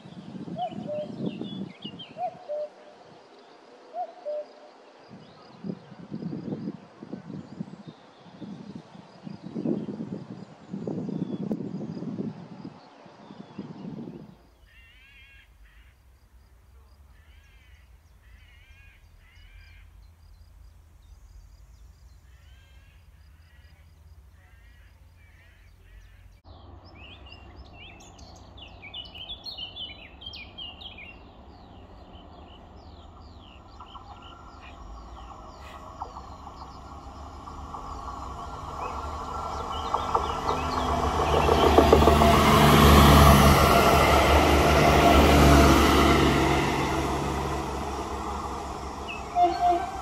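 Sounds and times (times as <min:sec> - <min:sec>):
harsh cawing bird calls: 0:14.6 - 0:16.0, 0:17.1 - 0:20.0, 0:22.3 - 0:26.4, 0:28.8 - 0:43.5
train mechanical hum: 0:15.5 - 0:50.0
small birds chirping: 0:16.8 - 0:42.4.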